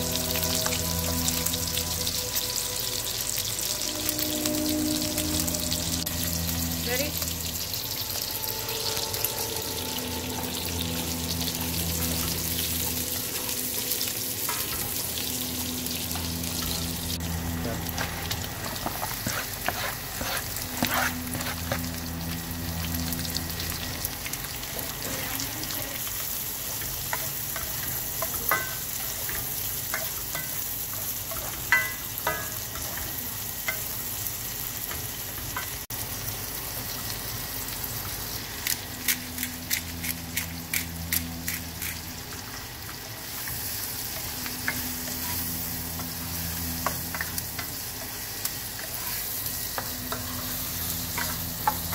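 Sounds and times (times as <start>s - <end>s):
meat and onions sizzling in pan: 0.0s - 51.9s
plastic spoon scraping a pan: 18.9s - 21.8s.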